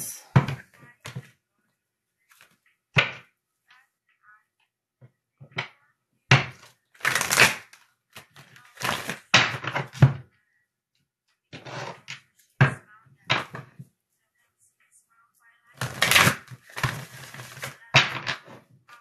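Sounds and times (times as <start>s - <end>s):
cards being shuffled: 6.6s - 10.0s, 15.8s - 18.4s.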